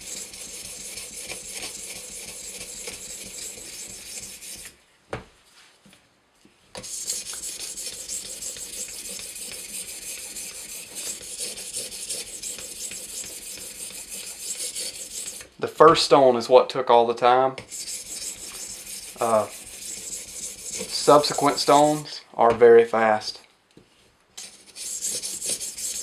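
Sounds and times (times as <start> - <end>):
sharpening stone scraping knife: 0.0 - 4.7, 6.8 - 15.5, 17.6 - 22.1, 24.4 - 26.0.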